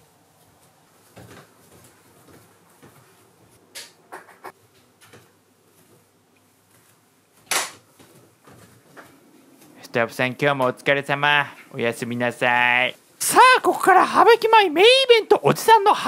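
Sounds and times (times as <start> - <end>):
barefoot footsteps on wooden floor: 0.3 - 3.6.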